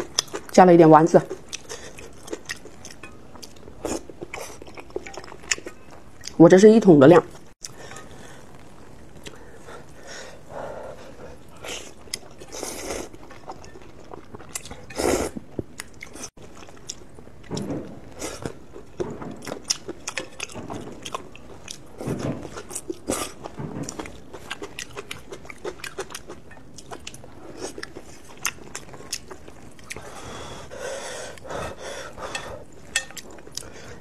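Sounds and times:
chewing with wet mouth clicks: 1.3 - 6.4, 11.9 - 14.9, 22.5 - 30.1.

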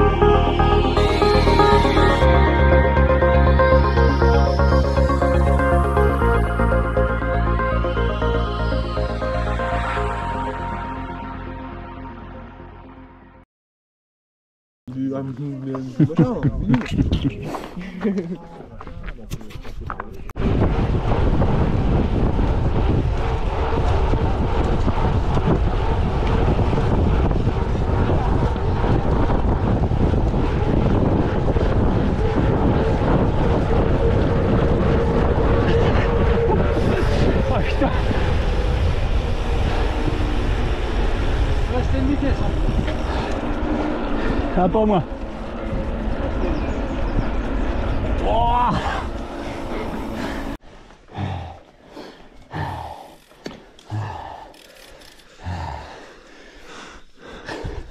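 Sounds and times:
loud rushing noise: 0.0 - 12.2, 20.4 - 50.6
bike ride rumble: 14.9 - 57.9
wind on microphone: 19.2 - 50.6
person breathing hard: 48.8 - 53.2, 53.8 - 57.9.

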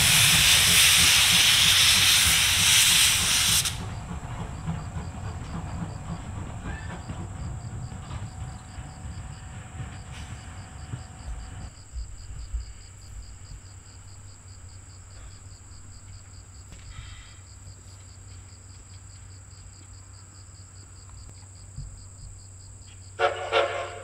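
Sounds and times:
insects chirping: 0.0 - 24.0
train whistle blasts: 23.2 - 24.0.

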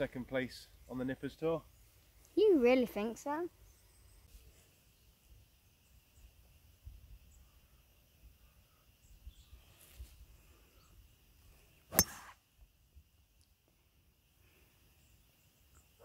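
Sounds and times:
golf club striking ball: 11.9 - 12.3.

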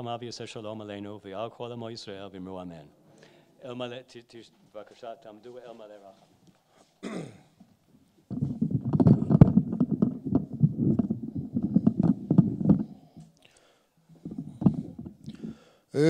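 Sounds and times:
chairs knocking and scraping: 7.6 - 13.0, 14.2 - 15.2.

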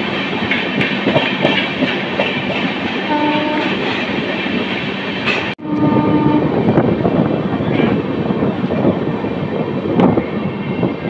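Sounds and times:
train wheels rumbling on rail: 0.0 - 11.0
short train horn note: 3.1 - 3.7, 5.6 - 6.5.

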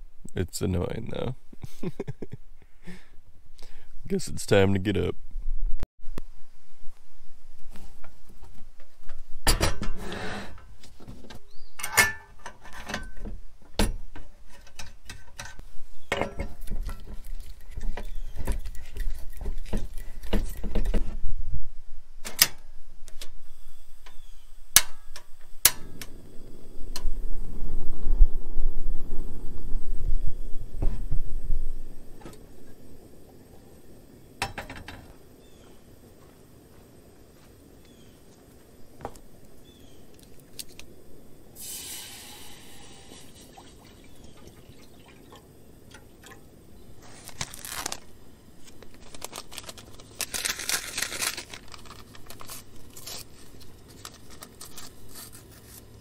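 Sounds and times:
steady rushing noise: 25.7 - 34.6.

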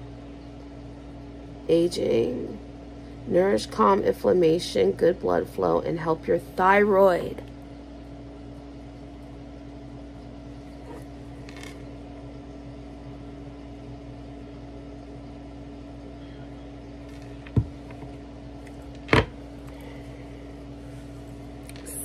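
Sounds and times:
appliance electrical hum: 0.0 - 22.0
handling knocks: 17.4 - 18.1.

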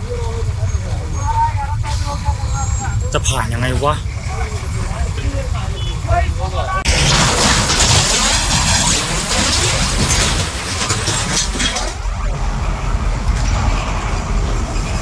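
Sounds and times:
bus engine rumbling: 0.0 - 15.0.

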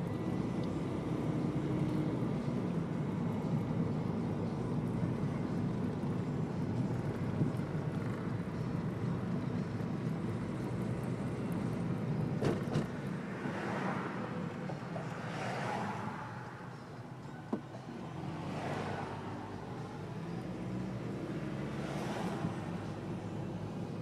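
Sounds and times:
car driving interior rumble: 0.0 - 13.2
passing traffic swishes: 0.0 - 24.0.

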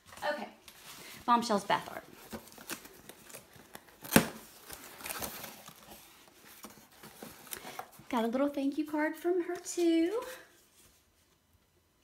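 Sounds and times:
cardboard rustling and scraping: 0.1 - 8.4
cardboard snap: 4.0 - 5.4.

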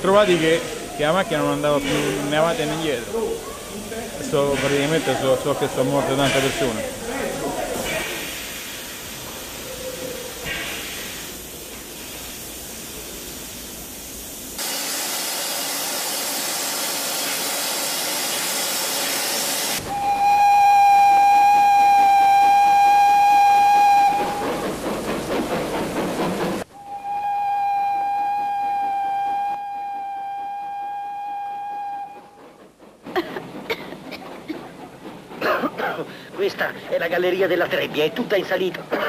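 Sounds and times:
rapid steam puffs: 0.0 - 21.5, 22.3 - 26.7, 32.4 - 38.6
steam hissing: 0.0 - 38.7
steam whistle blast: 19.8 - 24.5, 26.7 - 32.4.

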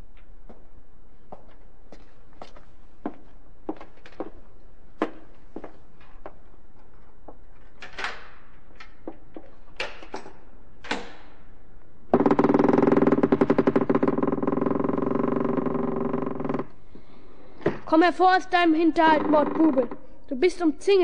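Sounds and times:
slow footsteps: 0.1 - 7.7
door creaking open: 12.2 - 16.7, 19.0 - 20.0.

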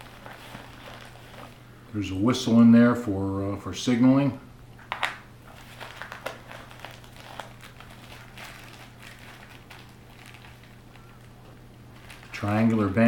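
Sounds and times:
plastic wrapping crinkling: 0.0 - 1.7, 4.9 - 13.0.

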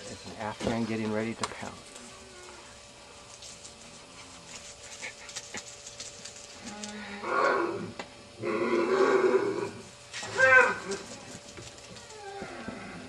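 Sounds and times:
animal calling: 7.2 - 11.1.

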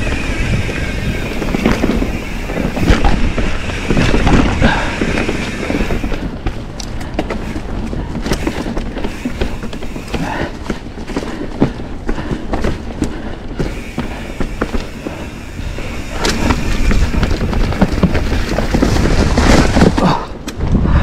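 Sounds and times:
wind rumble on microphone: 0.0 - 9.0, 15.0 - 21.0
mountain bike clattering on trail: 0.0 - 21.0.

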